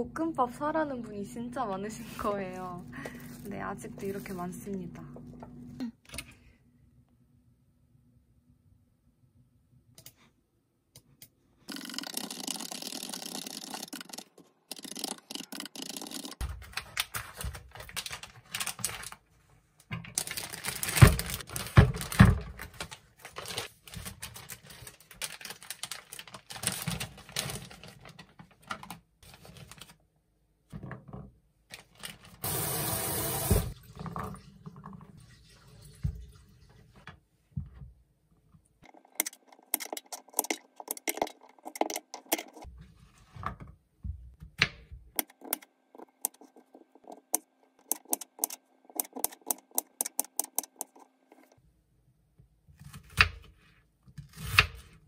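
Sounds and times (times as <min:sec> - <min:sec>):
plastic bag crinkling: 0:16.5 - 0:19.3, 0:20.2 - 0:30.0
tap water running: 0:32.4 - 0:37.0.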